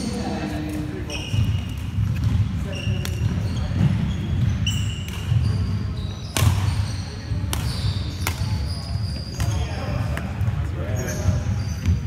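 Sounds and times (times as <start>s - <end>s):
shoes squeaking on hall floor: 0.0s - 12.0s
racket hitting shuttlecock: 4.8s - 5.7s, 6.3s - 10.3s.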